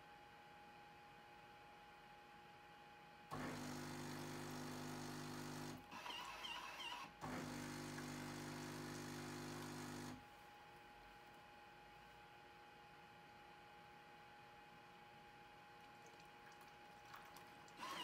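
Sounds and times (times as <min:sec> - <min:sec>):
espresso machine pump humming: 0:03.3 - 0:10.2, 0:17.1 - 0:18.0.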